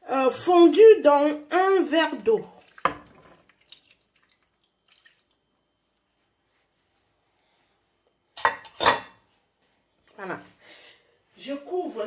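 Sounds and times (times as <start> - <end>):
faint drips: 2.2 - 5.6
liquid trickling into glass dish: 2.3 - 5.4.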